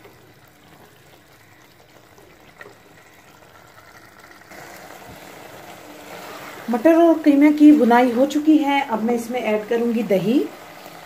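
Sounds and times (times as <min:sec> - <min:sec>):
meat and peas sizzling in oil: 0:00.0 - 0:11.0.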